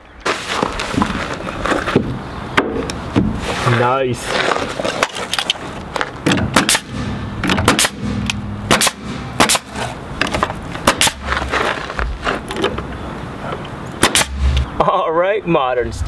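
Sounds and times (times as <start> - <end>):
nail gun shots: 6.3 - 9.9, 10.8 - 11.3, 14.0 - 14.6.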